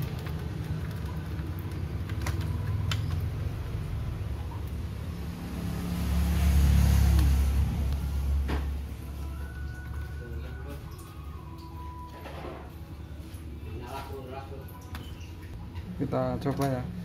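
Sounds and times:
low engine-like rumble: 0:00.0 - 0:12.1.

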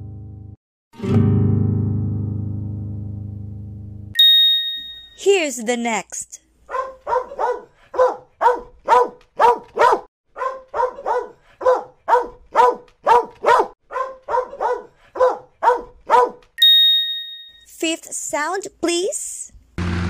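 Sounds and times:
dog barking: 0:06.7 - 0:16.4.

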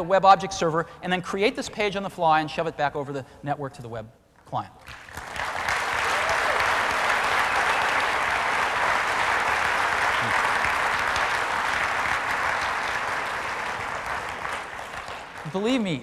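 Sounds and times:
audience applauding: 0:04.9 - 0:16.0.

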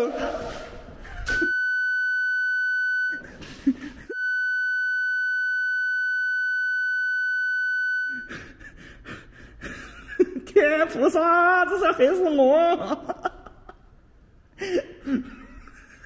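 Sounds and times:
electronic censor bleep: 0:04.1 - 0:08.3.

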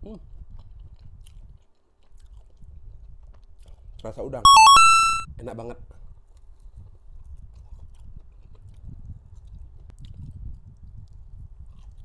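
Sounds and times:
man chewing food: 0:00.6 - 0:03.8, 0:11.7 - 0:12.0.

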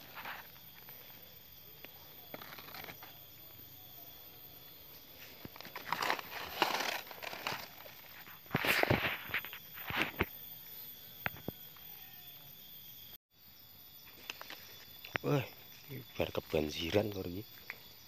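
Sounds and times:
leaves and undergrowth rustling: 0:04.1 - 0:10.4.

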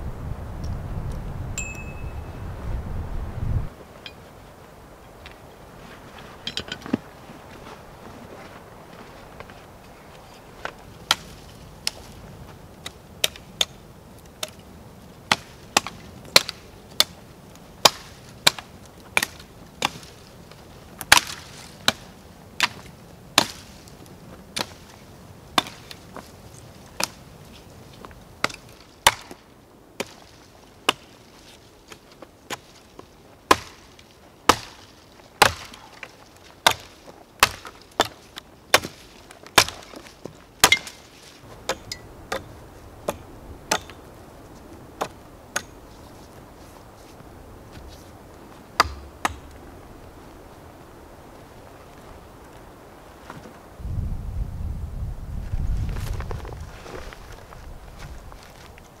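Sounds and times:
axe chopping dry wood: 0:11.0 - 0:12.0, 0:12.8 - 0:13.8, 0:15.3 - 0:17.2, 0:17.8 - 0:20.1, 0:21.0 - 0:23.7, 0:24.5 - 0:24.8, 0:25.6 - 0:26.0, 0:28.4 - 0:29.4, 0:33.5 - 0:33.9, 0:34.5 - 0:42.5, 0:43.1 - 0:44.0, 0:45.0 - 0:45.8, 0:48.7 - 0:49.6.

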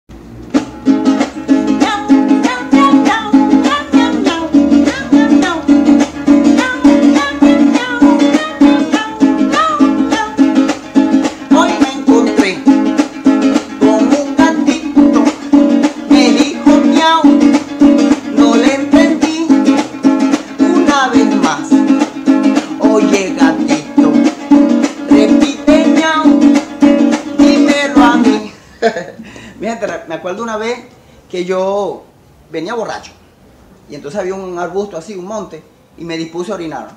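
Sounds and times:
acoustic guitar strumming: 0:00.1 - 0:28.8
man singing: 0:01.7 - 0:28.6.

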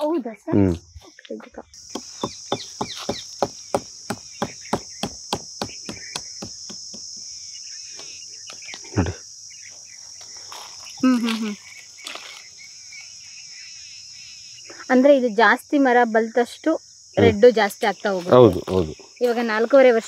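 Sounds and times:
high insect buzz: 0:01.7 - 0:20.0
fingernail scratching bark: 0:01.9 - 0:07.0.

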